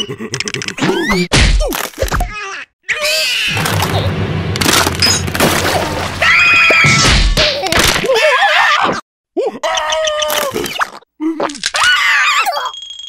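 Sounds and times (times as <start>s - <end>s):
cartoon characters screaming: 2.9s - 3.6s, 6.2s - 7.1s, 8.1s - 9.0s, 11.7s - 12.8s.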